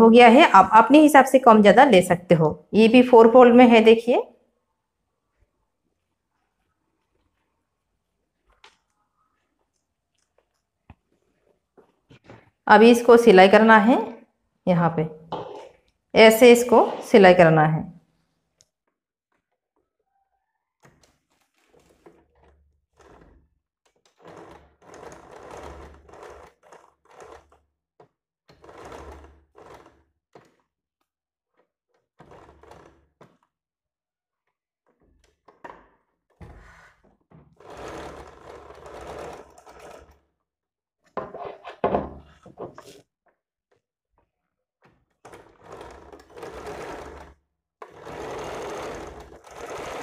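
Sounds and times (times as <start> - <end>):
sewing machine stitching: 20.1 - 30.7, 31.6 - 33.5, 34.9 - 40.4, 44.8 - 50.0.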